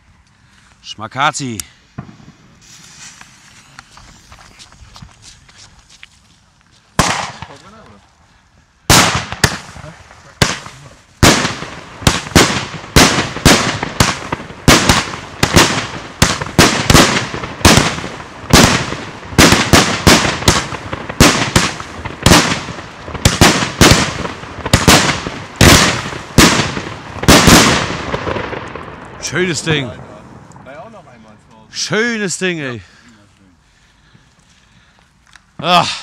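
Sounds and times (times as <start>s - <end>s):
firework bangs: 1.4s - 4.6s, 6.9s - 8.0s, 8.8s - 32.6s.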